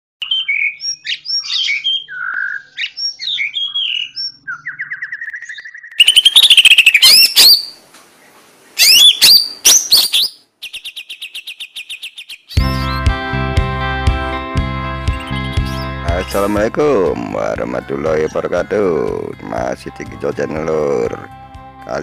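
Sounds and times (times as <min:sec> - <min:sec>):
bird chirping and whistling: 0:00.2 - 0:07.8, 0:08.8 - 0:13.1, 0:15.1 - 0:16.5.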